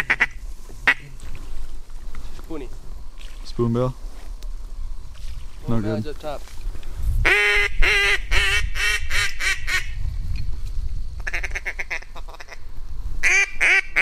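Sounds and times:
duck quacking: 0.0s - 1.1s.

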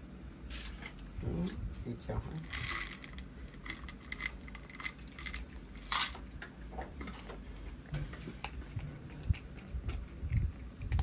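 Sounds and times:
kibble rattling out of plastic bottle: 2.5s - 6.0s
cat crunching kibble: 8.4s - 11.0s.

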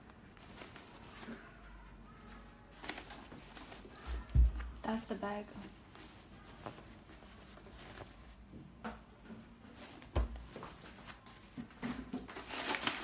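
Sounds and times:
cloth bag rustling: 5.1s - 8.5s.

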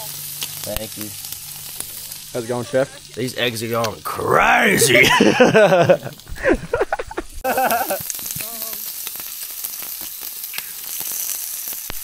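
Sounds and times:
meat sizzling on a hotplate: 0.0s - 12.0s
voices: 2.3s - 8.8s.

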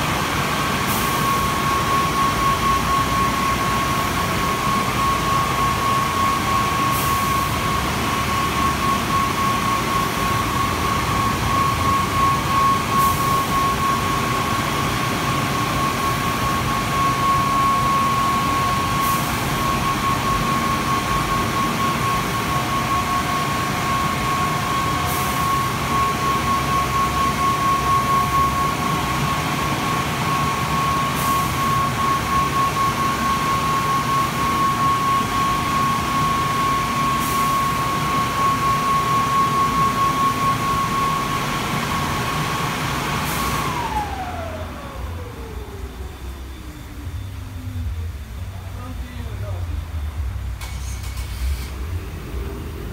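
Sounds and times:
constant high whine: 0.0s - 52.9s
dryer blowers rushing air: 0.0s - 52.9s.

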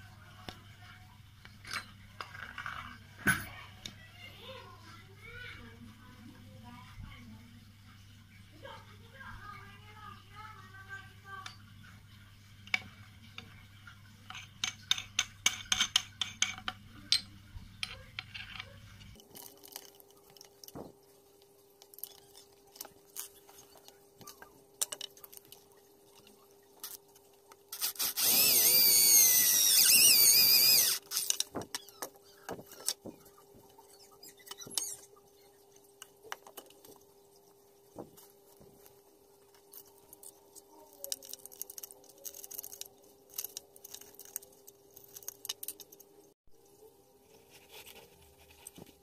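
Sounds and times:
electric drill boring into wood: 27.8s - 31.2s.

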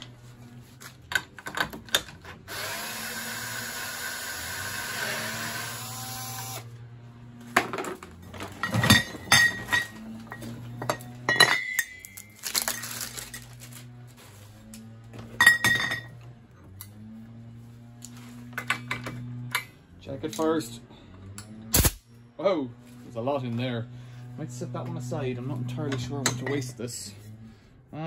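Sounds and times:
metal canisters clinking together: 8.6s - 10.0s.

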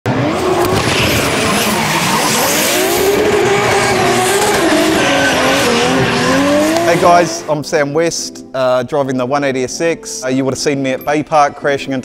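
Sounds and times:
car engine revving: 0.1s - 7.5s
tyres skidding: 0.1s - 7.5s.

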